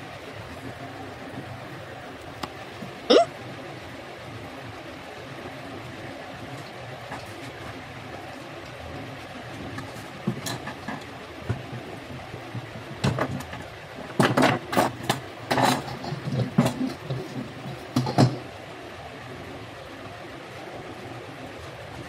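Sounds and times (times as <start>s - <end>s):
background hum: 0.0s - 22.0s
tools knocking on wooden workbench: 18.0s - 18.4s.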